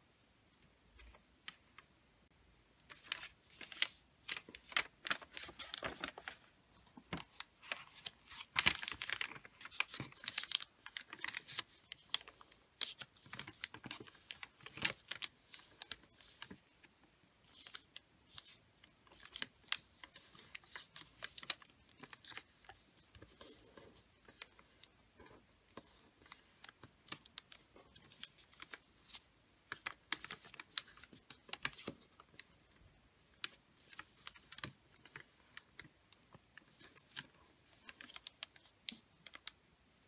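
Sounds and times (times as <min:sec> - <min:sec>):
wrapping paper crinkling: 0:02.9 - 0:16.6, 0:17.4 - 0:32.6.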